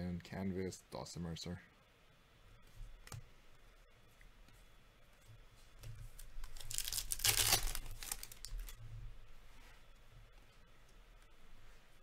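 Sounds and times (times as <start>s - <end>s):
cards rustling: 6.2s - 8.8s
wrapper tearing: 6.2s - 8.8s.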